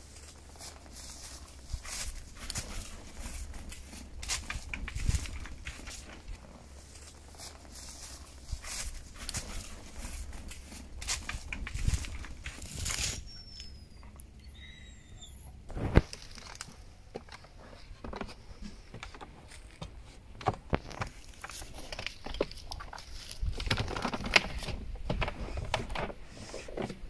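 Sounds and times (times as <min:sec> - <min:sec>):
faint high chirps: 0:13.2 - 0:15.6.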